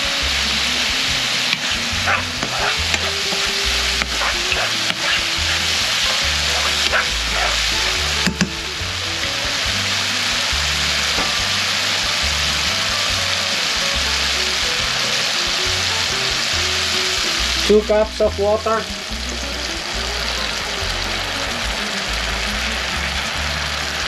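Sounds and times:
vegetables sizzling in frying pan: 0.0 - 24.0
utensil scraping and knocking pan: 1.4 - 8.6.

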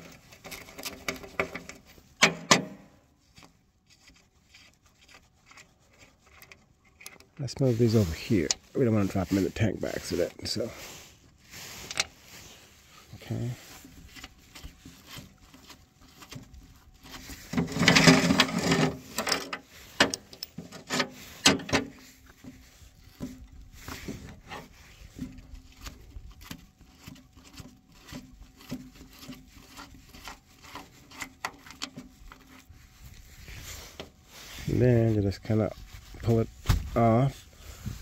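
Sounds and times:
metallic clicks of bolts unscrewed: 0.0 - 3.5, 4.1 - 7.7, 11.8 - 12.2, 17.1 - 22.6, 29.7 - 32.6
tools rubbing and clattering: 0.0 - 37.5.

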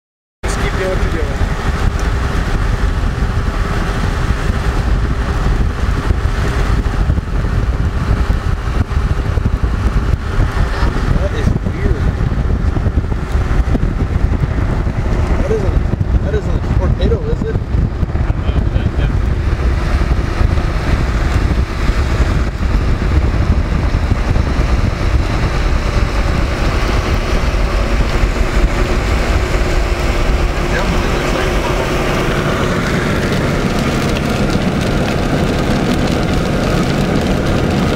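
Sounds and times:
wind buffeting microphone: 0.4 - 37.9.

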